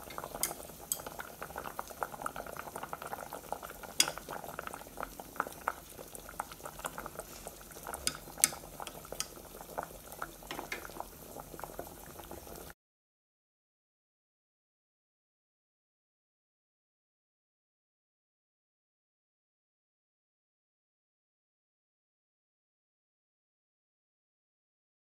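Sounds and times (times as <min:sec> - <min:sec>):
chopsticks clicking against pot: 0:00.0 - 0:01.3, 0:03.9 - 0:04.4, 0:07.9 - 0:09.5
soup boiling with bubbles popping: 0:00.0 - 0:12.8.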